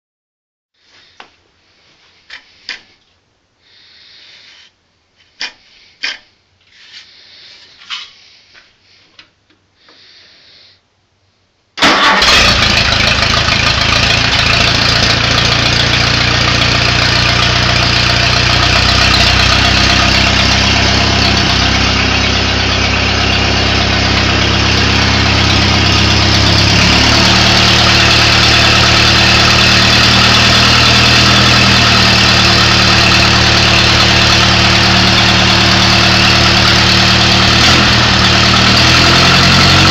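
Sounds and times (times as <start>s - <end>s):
tractor engine idling: 11.8s - 39.9s.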